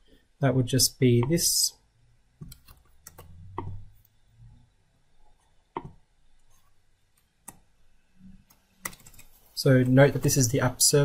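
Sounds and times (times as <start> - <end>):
mouse and keyboard clicks: 2.4 - 3.8.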